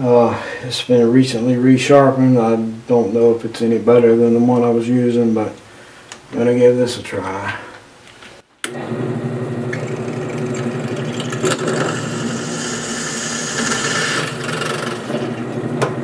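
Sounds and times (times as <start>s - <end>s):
drill press running: 8.6s - 16.0s
drill bit cutting aluminum: 11.4s - 15.2s.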